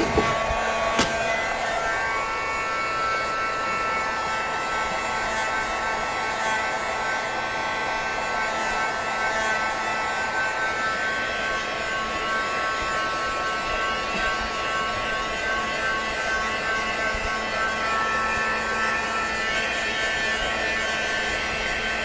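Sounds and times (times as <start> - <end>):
heat gun blowing air: 0.0 - 7.4.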